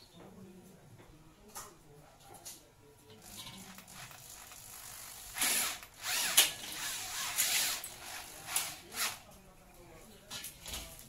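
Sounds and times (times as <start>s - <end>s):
electric drill on steel: 3.7s - 9.2s.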